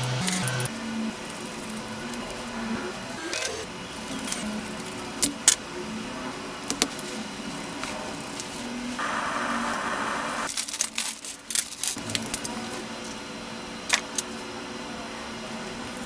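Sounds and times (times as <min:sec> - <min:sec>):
steady hiss: 0:07.0 - 0:10.5
plastic bag crinkling: 0:10.5 - 0:12.7.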